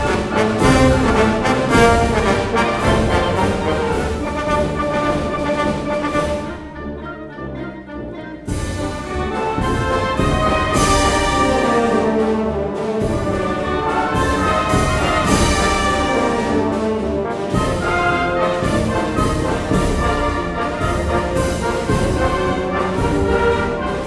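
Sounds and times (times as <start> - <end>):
wind band playing a march: 0.0 - 24.0.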